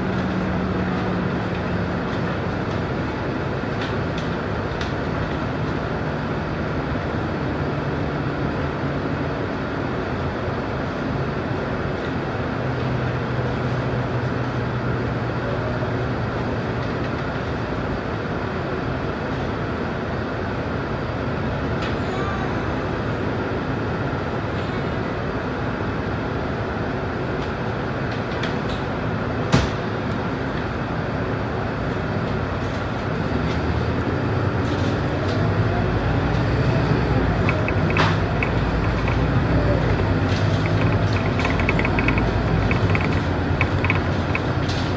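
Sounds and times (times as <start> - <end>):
bus diesel engine running: 0.0 - 44.9
road noise: 0.0 - 44.9
bus engine idling: 28.8 - 44.9
traffic passing: 30.2 - 44.9
light clicking rattles: 37.4 - 44.9.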